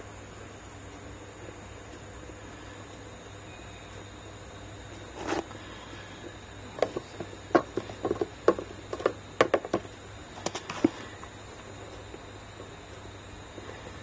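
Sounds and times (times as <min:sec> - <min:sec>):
plastic print scraping: 0:05.2 - 0:05.5.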